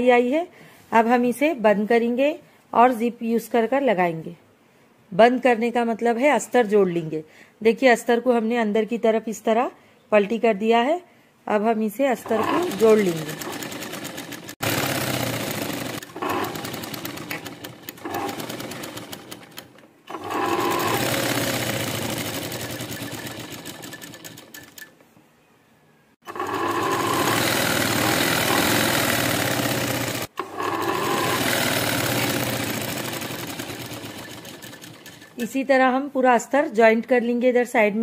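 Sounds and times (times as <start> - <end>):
sewing machine stitching: 12.2 - 24.9, 26.2 - 35.6.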